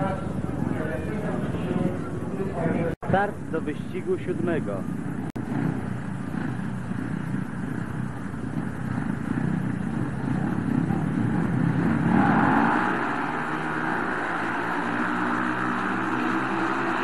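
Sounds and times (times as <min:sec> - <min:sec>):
motorcycles revving: 0:00.0 - 0:17.0.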